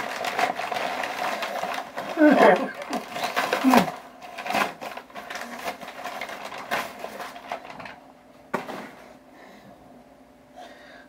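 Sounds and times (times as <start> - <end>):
packaging rustling and crinkling: 0.0 - 8.0.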